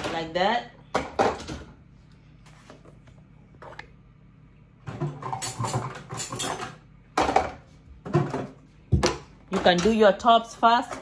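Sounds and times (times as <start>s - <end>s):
dishes clattering in dishwasher rack: 4.9s - 11.0s.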